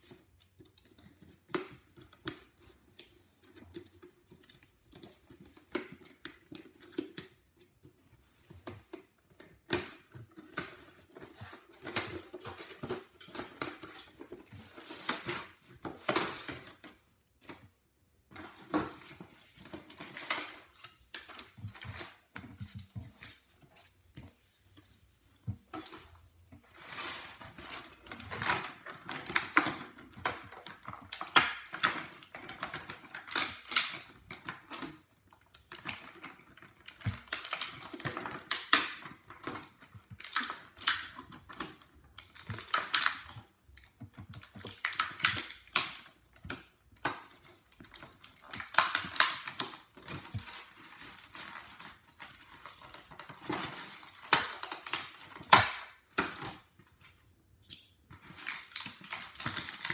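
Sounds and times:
plastic packaging crackling: 58.2 - 59.9.

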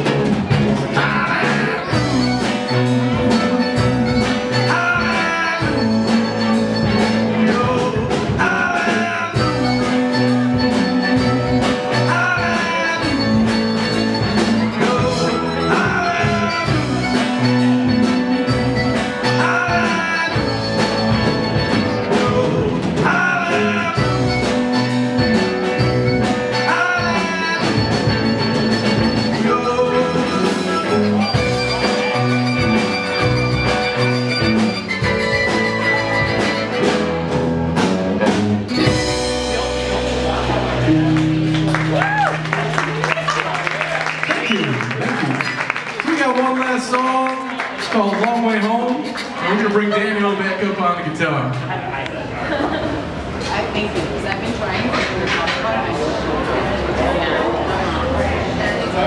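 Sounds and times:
electric guitar: 0.0 - 45.8
drum kit: 0.0 - 46.2
bass guitar: 0.0 - 59.0.

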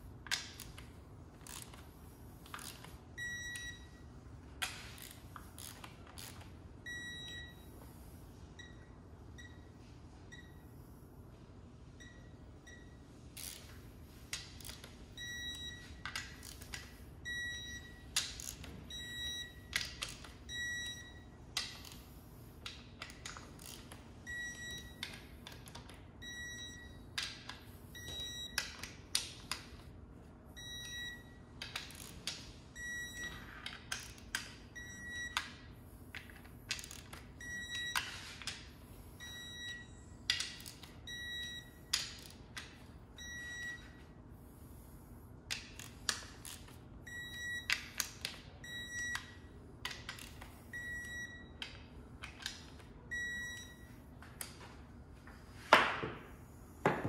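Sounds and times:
ratchet clicks: 18.2 - 18.7, 21.6 - 24.0, 31.6 - 32.4.

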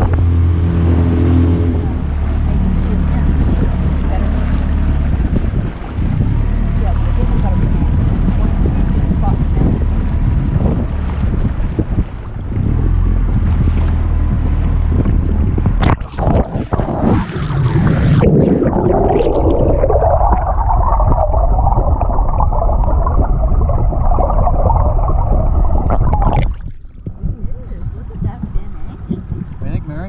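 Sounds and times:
splash: 0.0 - 27.2
muffled underwater rush: 0.0 - 30.0
wind and water rushing: 0.0 - 30.0.

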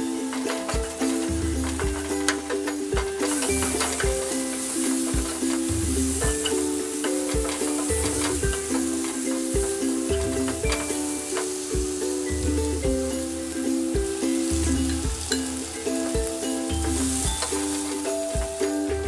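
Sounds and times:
wooden spatula scraping pan: 0.0 - 13.6
background music: 0.0 - 19.0
egg sizzling in a pan: 0.0 - 19.0.

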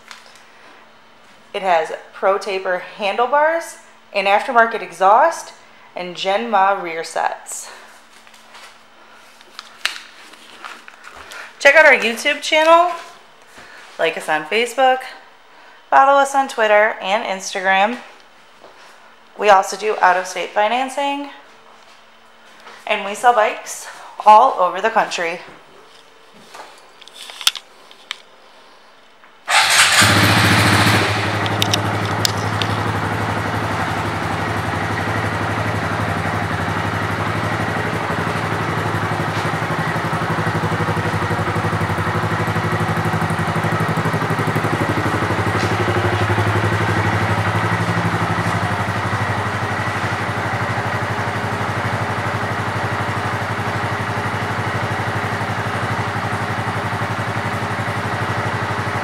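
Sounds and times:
motorcycle engine idling: 29.5 - 59.0.

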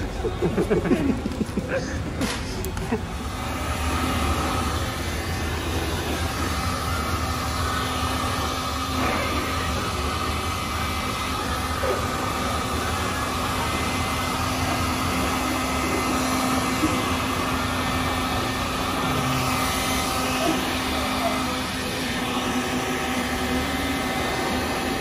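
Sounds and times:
heat gun fan humming: 0.0 - 25.0.

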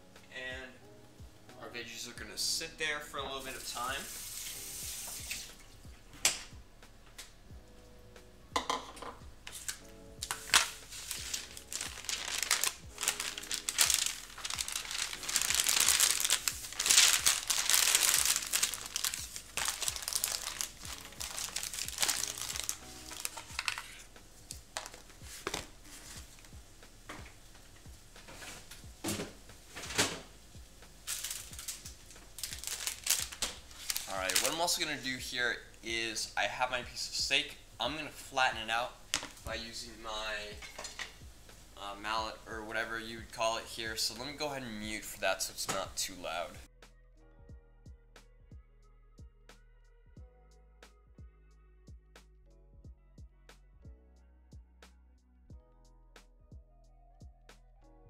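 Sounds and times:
faint background music: 0.0 - 58.0
dishes clattering: 8.6 - 9.2
packaging crinkling and rustling: 9.5 - 26.5, 31.0 - 35.1.

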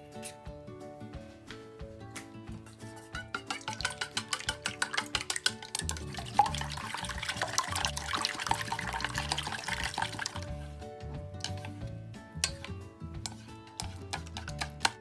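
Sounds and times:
background music: 0.0 - 15.0
eggs sloshing: 3.1 - 11.8, 12.4 - 15.0
chopsticks clicking on metal bowl: 3.2 - 6.2, 11.4 - 11.8, 12.4 - 15.0.

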